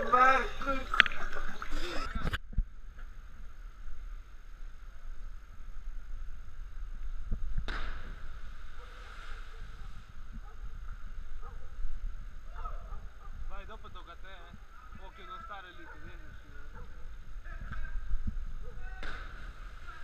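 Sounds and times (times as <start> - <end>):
wind rumbling on microphone: 0.8 - 20.0
rustling hiss: 2.8 - 15.6.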